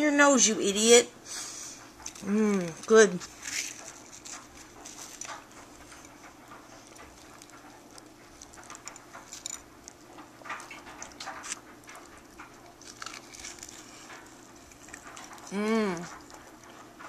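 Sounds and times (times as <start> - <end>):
dog licking and chewing: 1.8 - 17.0.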